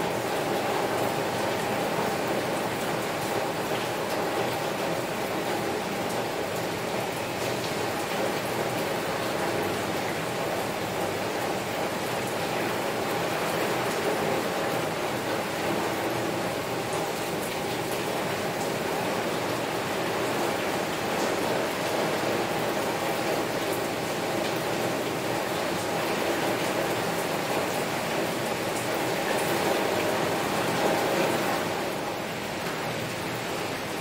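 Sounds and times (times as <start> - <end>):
heavy rain on a window: 0.0 - 34.0.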